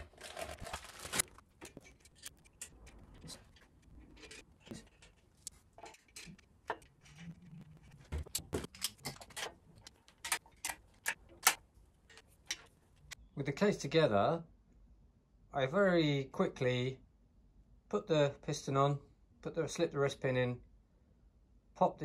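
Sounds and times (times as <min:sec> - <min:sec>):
small metal parts and tools clicking: 0:01.6 - 0:12.7.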